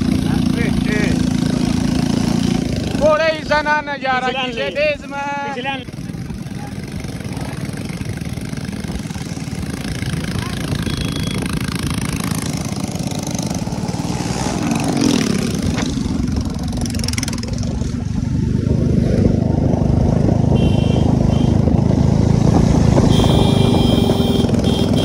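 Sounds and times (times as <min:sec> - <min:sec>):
motorcycle engine running: 0:00.0 - 0:25.0
short high-pitched beeps: 0:10.5 - 0:11.5.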